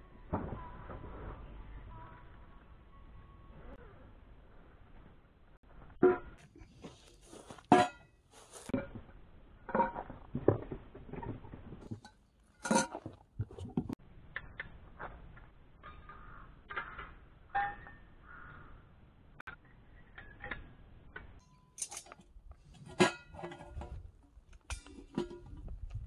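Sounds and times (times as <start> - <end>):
metal pots and utensils clinking: 7.7 - 8.9, 11.8 - 13.2, 21.4 - 22.2.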